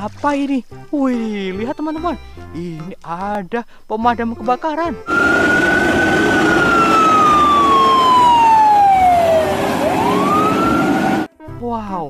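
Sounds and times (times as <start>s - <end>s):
fire truck siren wailing: 5.1s - 11.3s.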